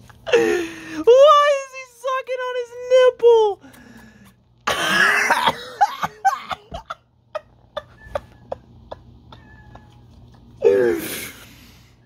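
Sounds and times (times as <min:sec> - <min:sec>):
person coughing: 0:04.7 - 0:06.7.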